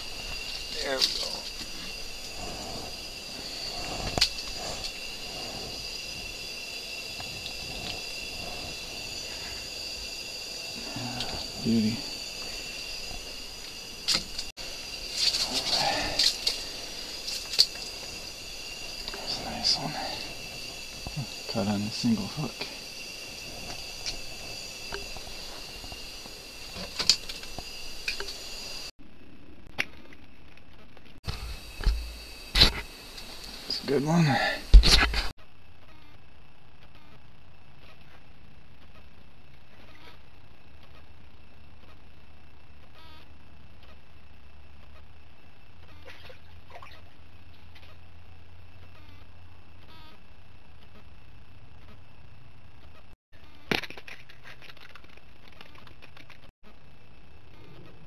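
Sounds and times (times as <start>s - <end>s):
high-pitched whine: 0.0s - 29.7s.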